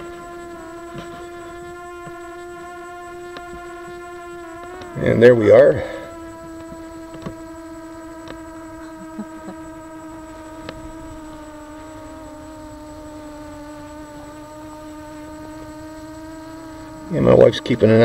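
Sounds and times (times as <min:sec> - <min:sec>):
drone propellers humming: 0:00.0 - 0:18.0
faint ticks: 0:03.0 - 0:05.0, 0:06.4 - 0:07.5, 0:08.1 - 0:09.6, 0:10.4 - 0:11.5.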